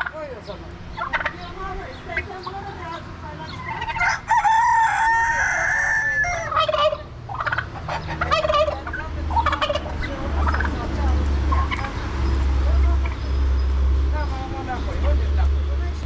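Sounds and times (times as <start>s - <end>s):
poultry calls and clucks: 0.0s - 15.7s
rooster crowing: 3.8s - 7.0s.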